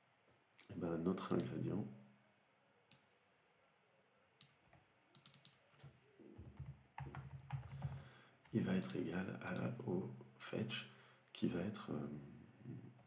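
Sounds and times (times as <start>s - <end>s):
faint keyboard typing: 0.6s - 1.7s, 4.4s - 9.9s.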